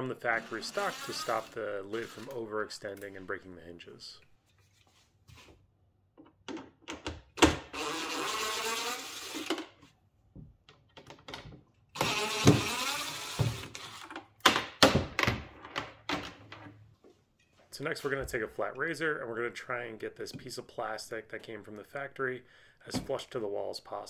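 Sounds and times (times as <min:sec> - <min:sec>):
impact driver running: 0:12.0 - 0:14.0.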